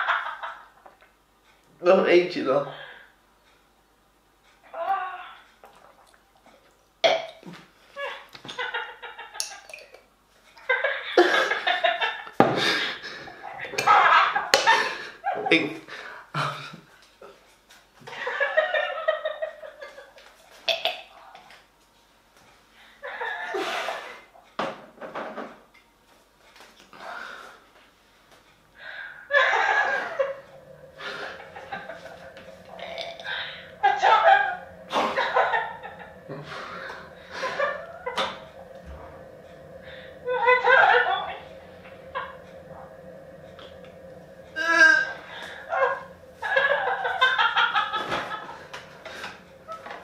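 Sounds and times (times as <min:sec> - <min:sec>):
man breathing: 0:28.8 - 0:40.6.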